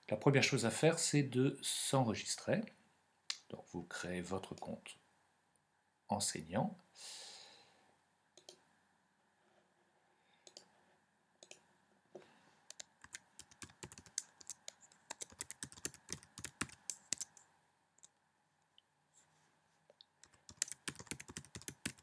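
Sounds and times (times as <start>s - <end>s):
typing on a keyboard: 12.7s - 17.4s, 20.2s - 22.0s.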